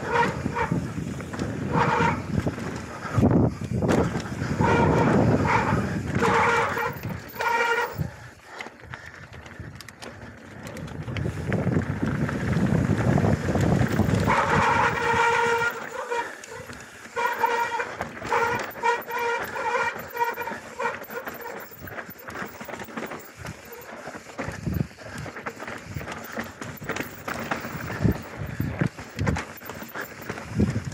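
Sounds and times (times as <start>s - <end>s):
wind on microphone: 0.0s - 8.2s, 10.7s - 15.9s, 26.8s - 30.9s
bicycle freehub buzzing: 0.0s - 30.9s
tyres rumbling on dirt trail: 0.0s - 30.9s.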